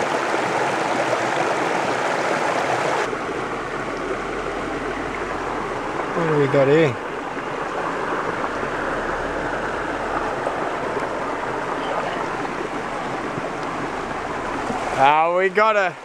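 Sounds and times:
creek water running: 0.0 - 16.0
water washing through plastic pan: 9.7 - 15.1.

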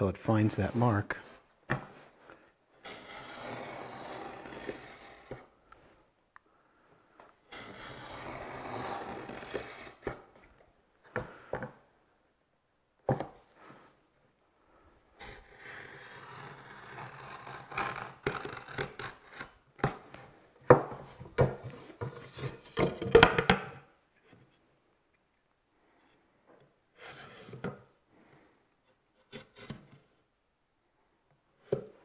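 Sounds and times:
knife scraping along wood: 2.8 - 5.5, 7.5 - 10.4, 15.2 - 20.0.

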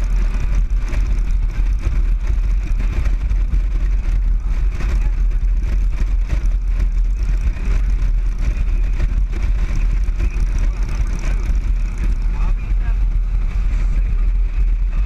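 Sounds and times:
motorcycle engine cruising: 0.0 - 15.0
road rumble: 0.0 - 15.0
wind: 0.0 - 15.0.

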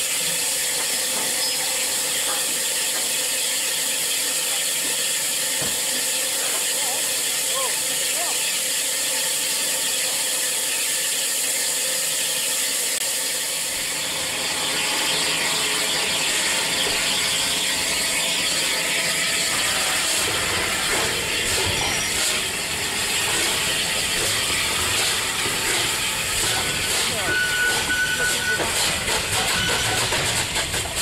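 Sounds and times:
steam locomotive moving off: 0.0 - 31.0
mechanical clatter: 27.7 - 31.0.

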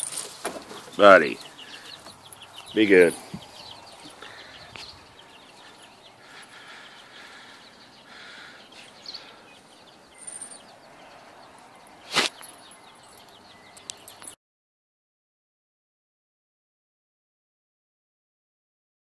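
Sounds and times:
faint bird chirping: 0.0 - 14.4.

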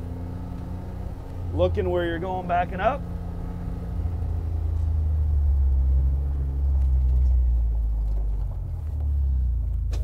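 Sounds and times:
utility vehicle engine drone: 0.0 - 10.0.

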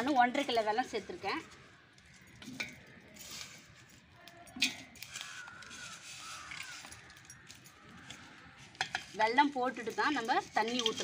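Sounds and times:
bird calling: 5.1 - 8.6.

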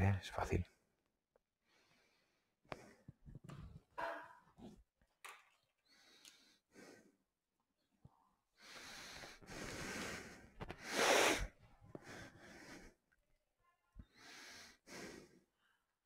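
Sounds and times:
person breathing and sniffing: 8.6 - 13.0, 14.1 - 15.5.

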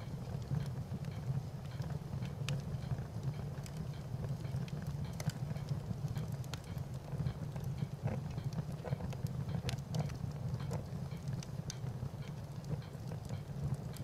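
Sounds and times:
fire crackling and popping: 0.0 - 14.0.

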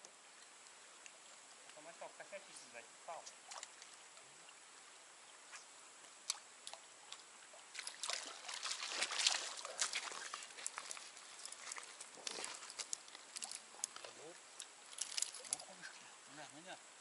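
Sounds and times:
river water splashing: 3.2 - 16.3.

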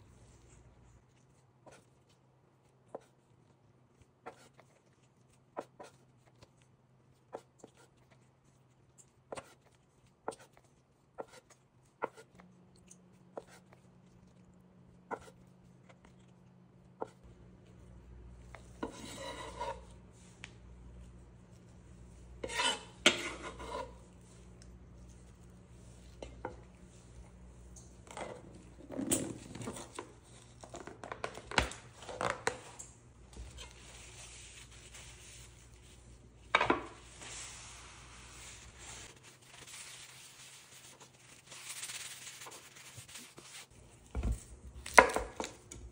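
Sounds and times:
scraping and knocking into bowl: 18.6 - 20.0, 22.4 - 24.1
paper towel rubbing board: 37.0 - 43.8.

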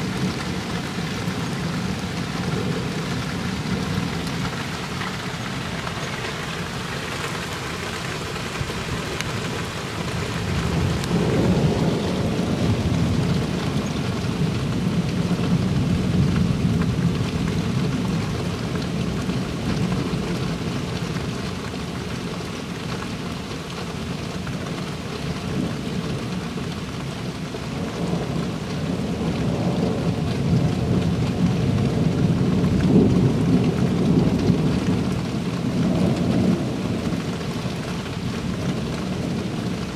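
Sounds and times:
steady rain falling: 0.0 - 39.9
low rolling thunder: 8.4 - 20.8, 27.8 - 39.9.

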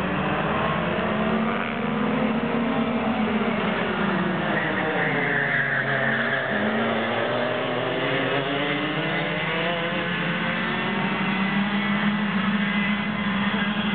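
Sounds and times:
go-kart engines racing: 0.0 - 13.9.

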